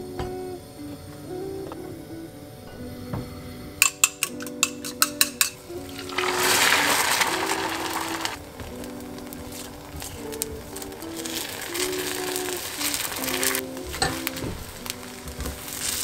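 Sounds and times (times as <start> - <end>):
chopsticks clicking on ceramic bowl: 3.8 - 5.6
egg sizzling in hot pan: 3.8 - 16.0.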